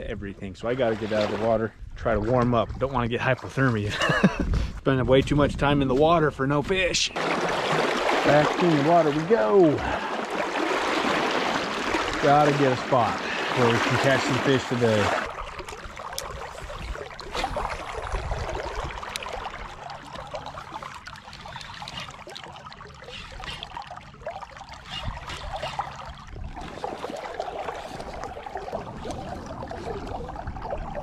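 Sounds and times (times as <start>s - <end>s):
river water sloshing and trickling: 0.6s - 3.9s, 7.1s - 31.0s.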